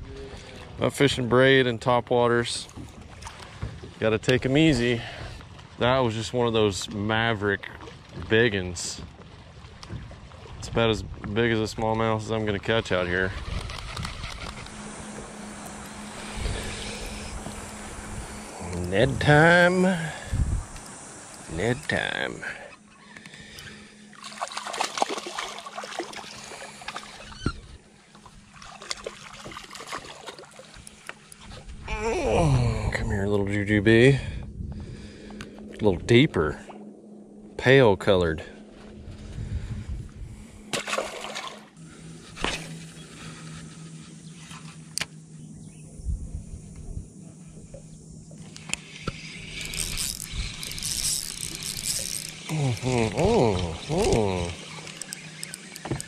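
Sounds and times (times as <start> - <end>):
low hum: 0.0 - 56.0
fishing reel whirring: 12.7 - 32.8, 41.7 - 56.0
fishing reel clicking: 12.9 - 14.8, 48.5 - 56.0
fish splashing at water surface: 24.2 - 27.3, 28.5 - 31.0, 40.7 - 41.7.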